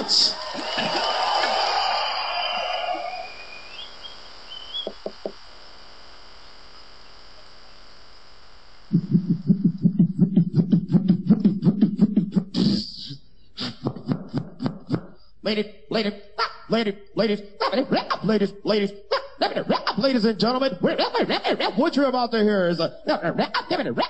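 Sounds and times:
hummed buzzing bass line: 4.3 - 12.5
beatboxing mouth clicks: 4.8 - 5.4, 8.9 - 15.3, 19.6 - 20.1.

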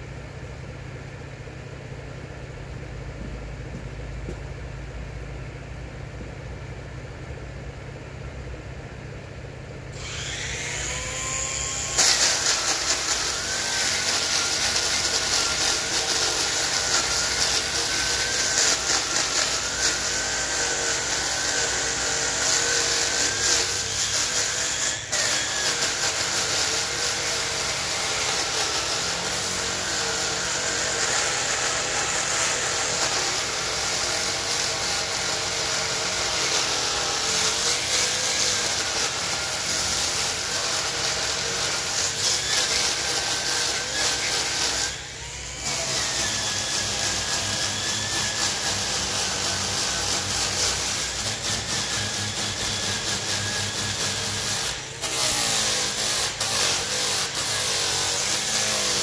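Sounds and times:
angle grinder motor whine: 10.0 - 59.0
sanding disc grinding on wood: 10.0 - 59.0.

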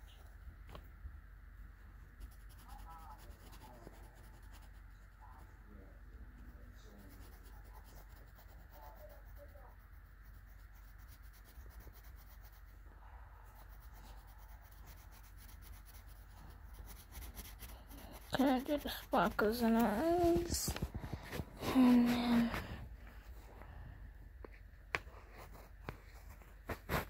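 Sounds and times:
steady low hum: 0.0 - 27.0
pencil scratching on paper: 2.2 - 5.4, 6.2 - 12.8, 13.4 - 22.3.

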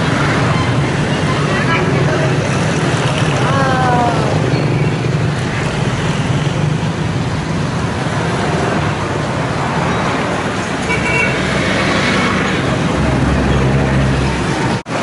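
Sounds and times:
traffic engine hum: 0.0 - 15.0
car horn toot: 10.9 - 11.4.

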